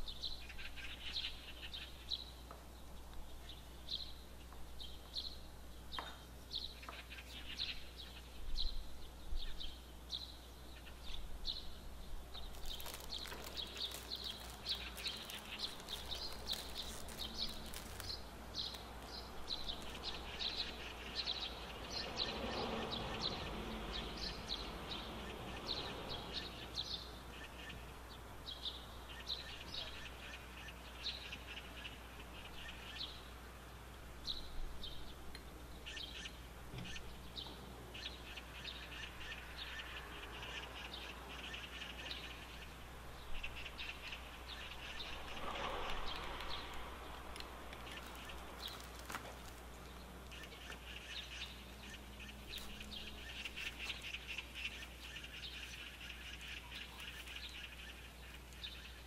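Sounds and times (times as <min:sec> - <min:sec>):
small bird chirping: 0:03.1 - 0:22.5, 0:47.8 - 0:59.0
plastic packet crinkling: 0:12.4 - 0:20.2, 0:47.8 - 0:49.9, 0:52.4 - 0:54.0.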